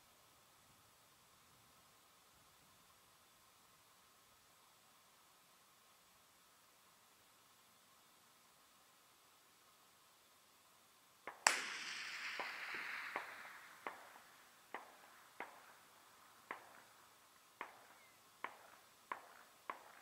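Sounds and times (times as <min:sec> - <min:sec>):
distant rifle shot with echo: 0:11.3 - 0:20.0.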